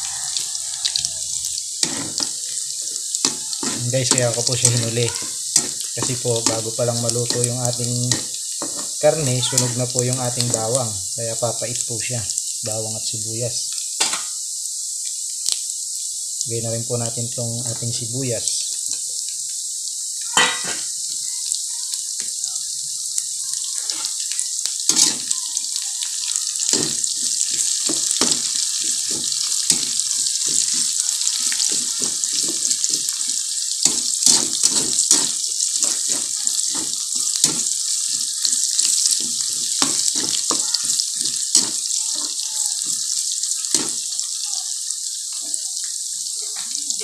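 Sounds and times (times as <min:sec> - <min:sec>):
garlic and onion sizzling: 0:00.0 - 0:47.0
spatula scraping a wok: 0:01.8 - 0:09.0, 0:23.8 - 0:24.2, 0:24.9 - 0:25.3, 0:26.5 - 0:43.0.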